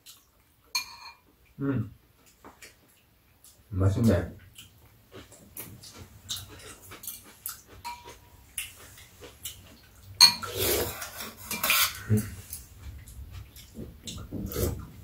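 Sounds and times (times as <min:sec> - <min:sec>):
utensils clinking on bowls: 0:00.7 - 0:01.2, 0:07.8 - 0:08.2, 0:10.2 - 0:12.1.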